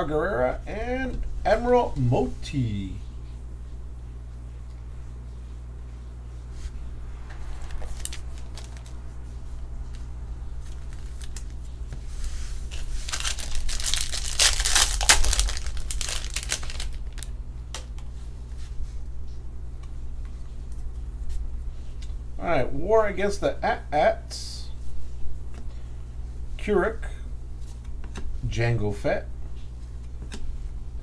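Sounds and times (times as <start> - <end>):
cards rustling and clicking: 7.6 - 9.0, 9.8 - 12.0, 12.7 - 18.0
foil pack tearing and crinkling: 7.6 - 9.0, 10.7 - 11.6, 12.7 - 17.3.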